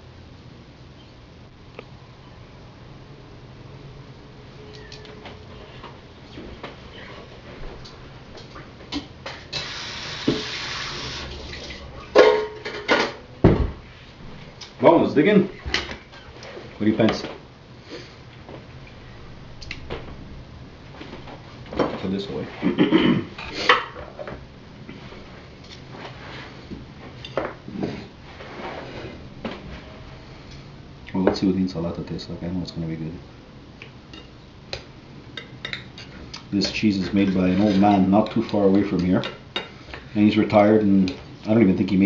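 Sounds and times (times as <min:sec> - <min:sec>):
steady low hum: 0:00.0 - 0:42.0
kitchen tap running: 0:09.6 - 0:11.8.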